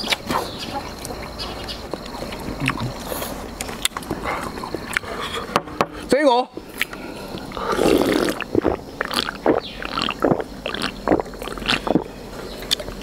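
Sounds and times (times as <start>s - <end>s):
wet mouth sounds: 6.8s - 13.0s
gulping from drink can: 7.4s - 13.0s.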